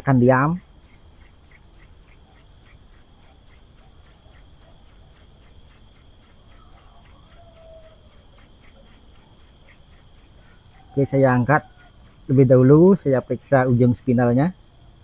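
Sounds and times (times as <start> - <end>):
insect chirping: 0.0 - 15.0
regular ticks: 0.0 - 15.0
hand drill rubbing on wood: 0.3 - 15.0.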